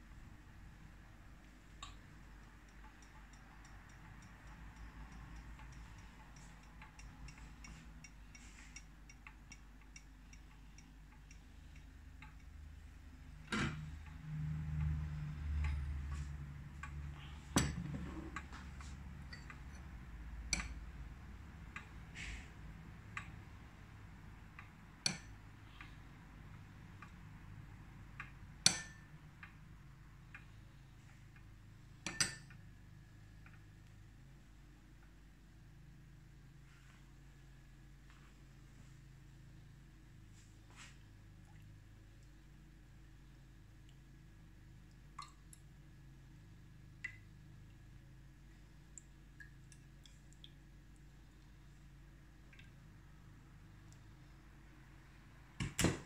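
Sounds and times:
faint regular ticking: 0.1 - 17.6, 18.2 - 36.5.

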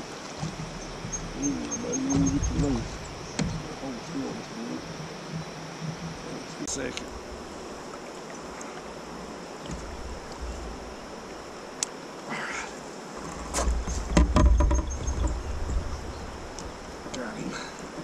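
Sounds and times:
low rumble and clatter: 0.0 - 7.1, 13.2 - 17.2
water around kayak hull: 0.0 - 18.0
scattered knocks and clicks: 0.4 - 3.7, 13.6 - 15.8.

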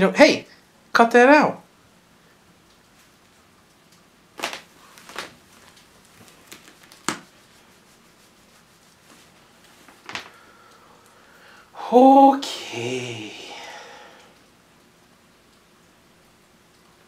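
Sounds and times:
taps and rustles: 4.4 - 7.4, 9.0 - 10.4.

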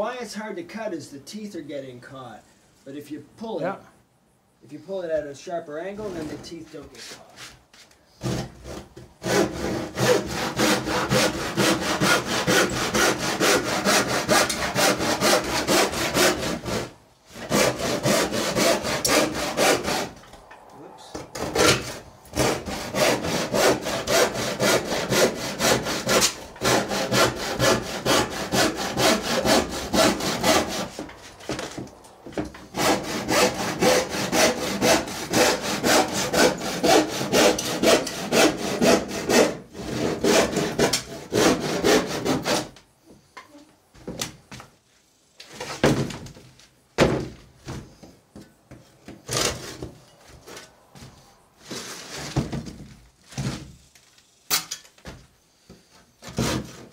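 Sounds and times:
handsaw cutting wood: 8.2 - 20.3, 21.2 - 42.8, 49.3 - 52.5, 56.2 - 56.9
short knocks and scrapes: 30.4 - 32.7, 45.4 - 53.8.

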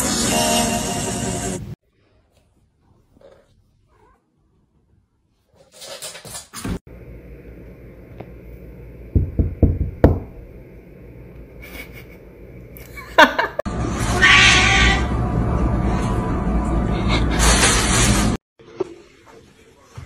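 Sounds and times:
cats meowing and yowling: 14.1 - 15.1.

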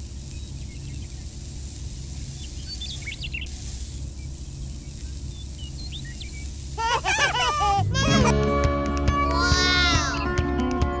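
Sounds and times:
low machine hum: 0.0 - 9.6
faint high bird chirps: 2.2 - 6.9.

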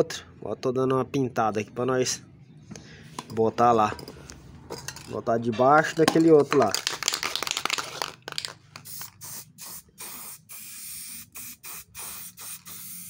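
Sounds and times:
spray can clicking rattle: 6.1 - 9.4
spray can hissing bursts: 8.8 - 13.0.

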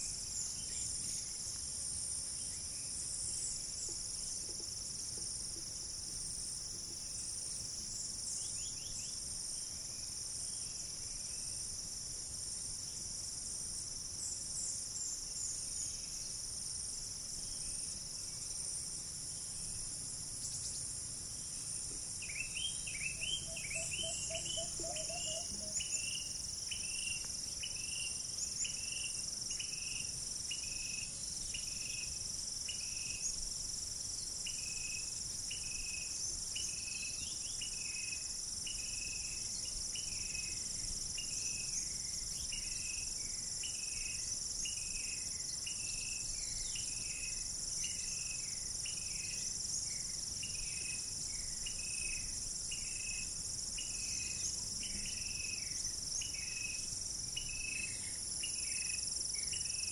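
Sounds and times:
cicadas and crickets droning: 0.0 - 59.9
short insect chirp: 0.0 - 59.9
faint bird calls: 22.6 - 26.1.

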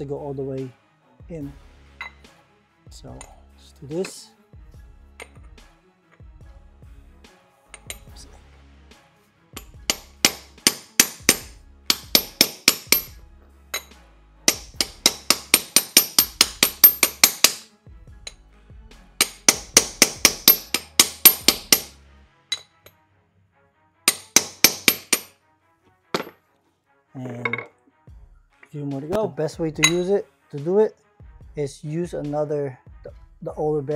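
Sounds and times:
hammer tapping on metal socket: 9.9 - 13.1, 14.5 - 17.6, 19.2 - 21.9, 24.1 - 25.3.

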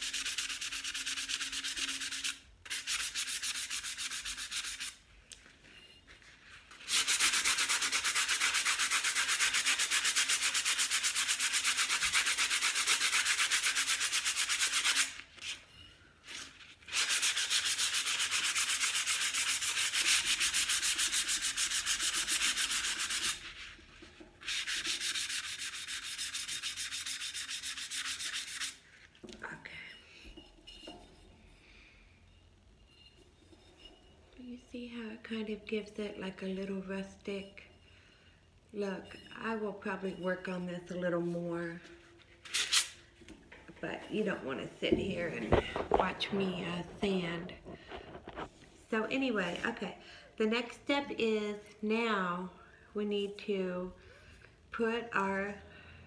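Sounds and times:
sandpaper rasping on glass jar: 0.0 - 5.0, 6.6 - 15.6, 16.2 - 28.9.

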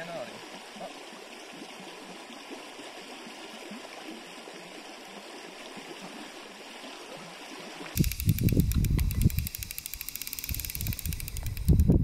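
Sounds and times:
river flowing over stones: 0.0 - 8.0.

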